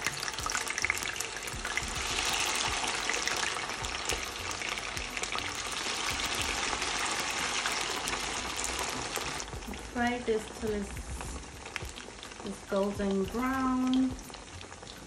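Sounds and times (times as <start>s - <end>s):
plantain deep-frying in oil: 0.0s - 15.0s.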